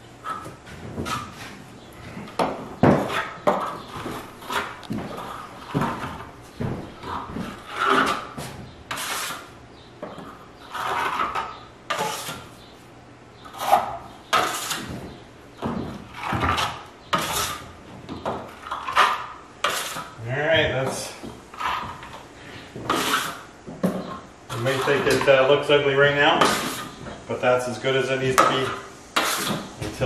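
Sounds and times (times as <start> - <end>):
trowel scraping plaster on wall: 0.2 - 12.6, 13.4 - 15.0, 15.8 - 17.8, 18.4 - 20.2, 21.5 - 23.5, 24.5 - 27.0, 28.4 - 30.0.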